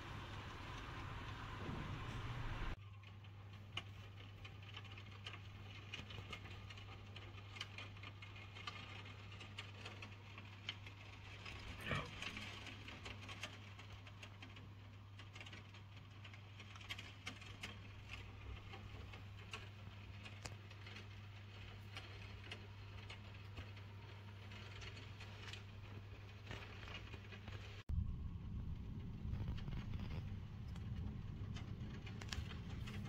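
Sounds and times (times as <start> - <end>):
steady low hum: 0.0 - 2.8, 27.8 - 33.0
rain drops ticking: 0.0 - 33.0
loud low rumble: 27.9 - 33.0.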